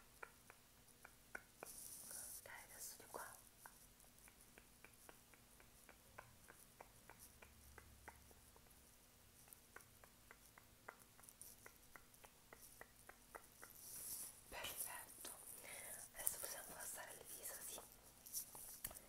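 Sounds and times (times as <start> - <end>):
makeup brush soft ticks: 14.6 - 18.0.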